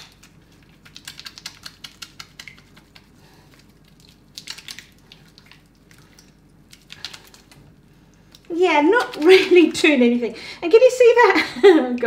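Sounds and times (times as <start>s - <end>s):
wet hands lathering soap: 0.0s - 9.7s.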